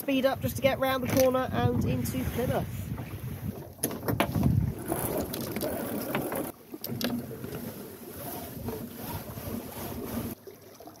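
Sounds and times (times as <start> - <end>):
water noise: 0.0 - 11.0
wind: 0.0 - 11.0.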